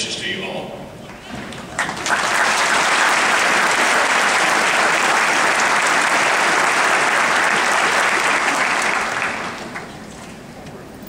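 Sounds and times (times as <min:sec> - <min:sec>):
large audience applauding: 0:01.4 - 0:10.0.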